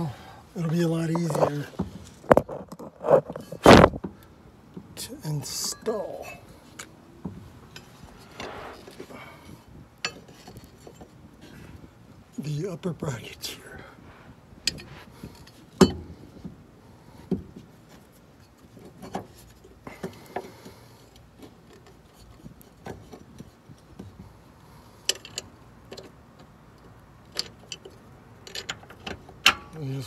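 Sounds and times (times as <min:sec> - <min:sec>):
brief scraping rub: 0:08.1 - 0:09.1.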